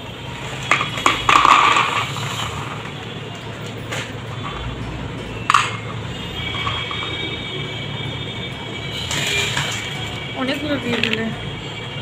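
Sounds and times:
biscuits clinking into metal bowl: 0.5s - 3.0s.

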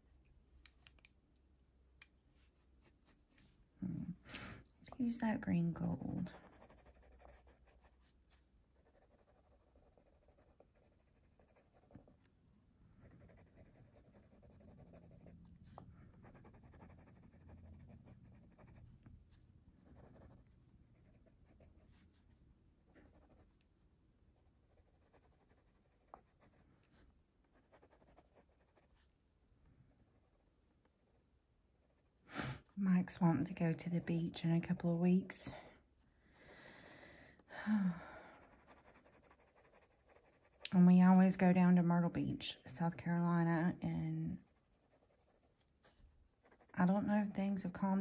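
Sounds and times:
pencil scratching on paper: 5.8s - 12.2s, 13.0s - 19.1s, 19.8s - 22.2s, 23.0s - 23.6s, 24.7s - 26.9s, 27.5s - 29.1s, 38.2s - 40.6s, 44.4s - 47.3s.

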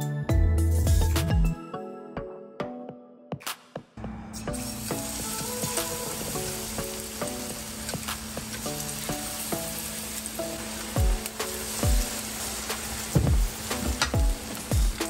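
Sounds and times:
food frying in hot oil: 4.6s - 15.0s.

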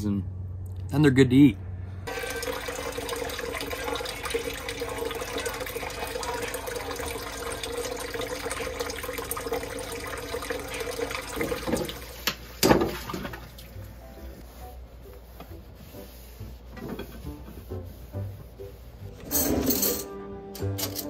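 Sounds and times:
faucet running into a sink: 2.1s - 13.4s
water splash: 12.6s - 13.8s.

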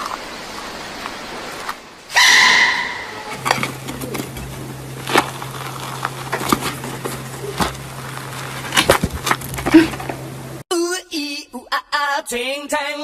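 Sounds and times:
steady low hum: 2.9s - 10.6s.

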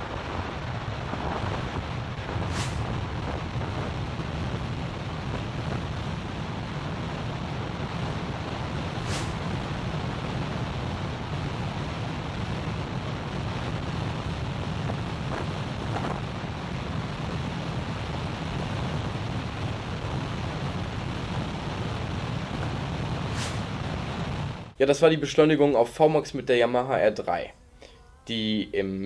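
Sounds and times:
wind noise on microphone: 0.0s - 24.8s.

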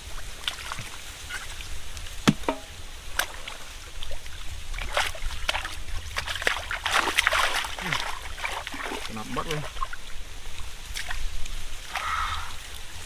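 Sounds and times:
knocks: 2.2s - 2.7s
hands splashing in muddy water: 2.3s - 10.1s, 10.8s - 12.5s.

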